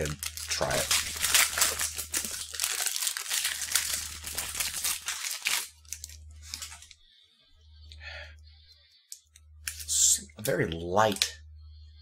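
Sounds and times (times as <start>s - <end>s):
plastic wrapper crinkling and tearing: 0.0s - 7.0s.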